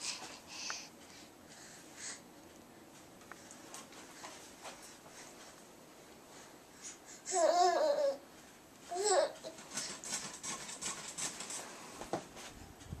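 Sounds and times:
baby babbling: 7.2s - 8.2s, 8.9s - 9.5s.

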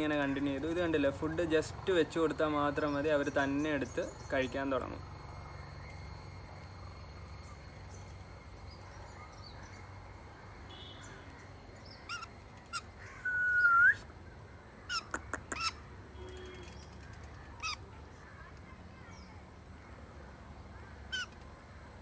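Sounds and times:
faint high-pitched whine: 0.0s - 15.1s
bird chirps and calls: 10.8s - 14.0s, 14.9s - 17.9s, 21.1s - 21.4s.

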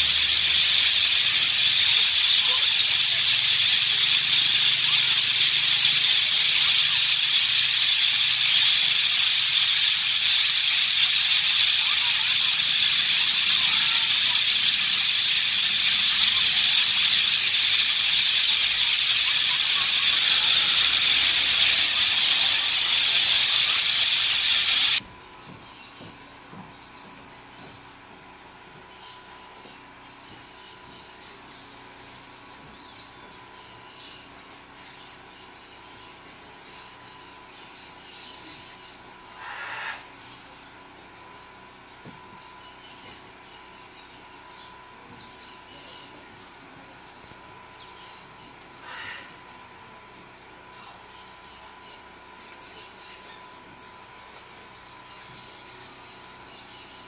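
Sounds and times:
faint scattered chirps: 0.0s - 25.0s
insect chorus buzzing: 0.0s - 57.0s
faint short bird calls: 38.4s - 40.4s, 48.8s - 49.4s.

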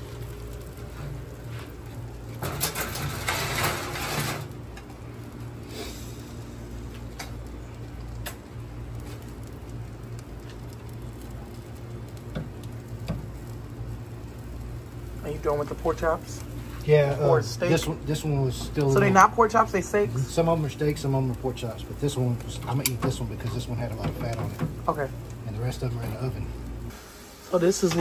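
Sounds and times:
sausages sizzling on grill: 0.0s - 28.0s
steady low rumble: 4.5s - 26.9s
tongs clicking on grill grate: 8.0s - 8.5s, 22.1s - 25.4s.

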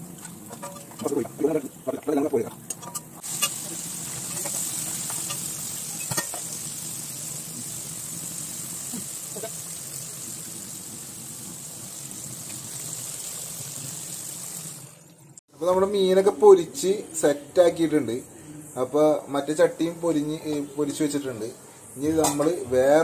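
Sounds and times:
fish deep-frying in hot oil: 2.2s - 15.1s.

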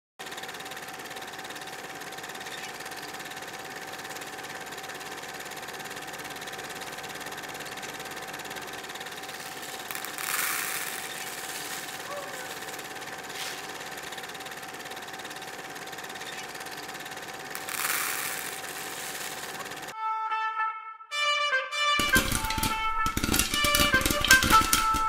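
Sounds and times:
small electric motor whirring: 0.2s - 20.0s
popcorn kernels poured into cup: 8.9s - 14.2s, 17.3s - 19.9s, 22.0s - 25.0s.

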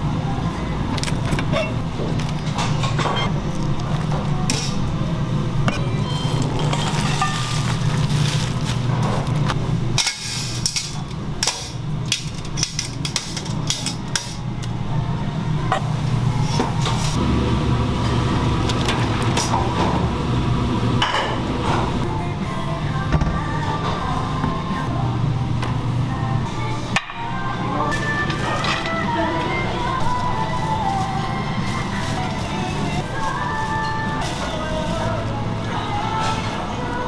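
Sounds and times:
steady low hum: 3.3s - 37.0s.

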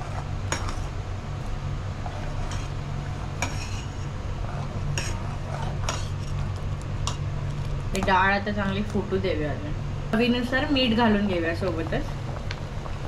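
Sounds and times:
ladle scraping thick liquid: 0.0s - 6.7s
steady low hum: 0.0s - 13.0s.

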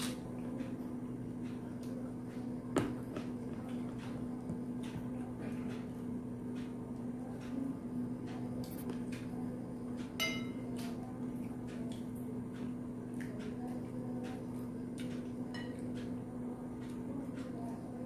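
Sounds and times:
steady low hum: 0.0s - 18.0s
plate ringing clink: 10.2s - 10.6s.

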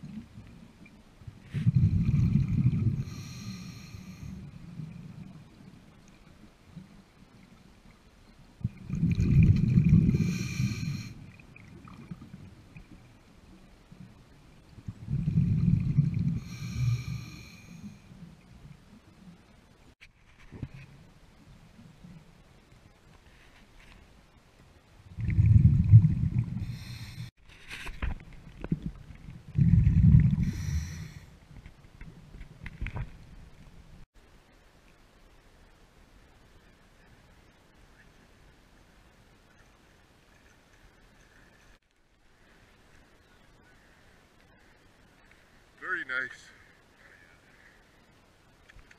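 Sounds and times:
bubbling exhale underwater: 1.6s - 3.5s, 8.6s - 12.3s, 14.9s - 17.5s, 25.1s - 27.1s, 29.6s - 31.2s
regulator hissing inhale: 3.0s - 4.4s, 10.1s - 11.2s, 16.3s - 18.0s, 26.6s - 27.3s, 30.4s - 31.3s.

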